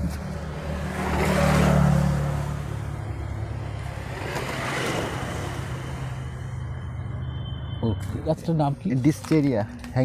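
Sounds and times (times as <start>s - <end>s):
vehicle engine passing: 0.0s - 7.4s.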